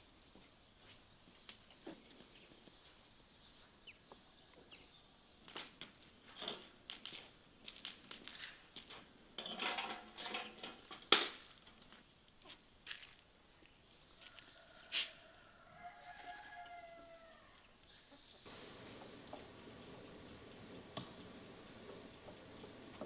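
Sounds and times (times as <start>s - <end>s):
wood fire crackling: 5.5s - 12.5s, 18.5s - 23.0s.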